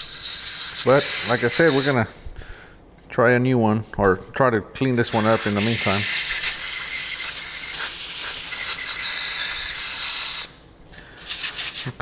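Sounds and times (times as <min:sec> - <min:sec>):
compressed air spraying hiss: 0:00.0 - 0:02.1, 0:05.1 - 0:12.0.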